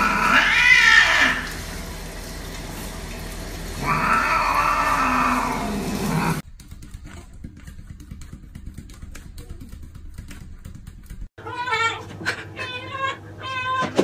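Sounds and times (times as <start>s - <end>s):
cat yowling: 0.0s - 1.6s, 3.8s - 6.4s, 11.4s - 14.0s.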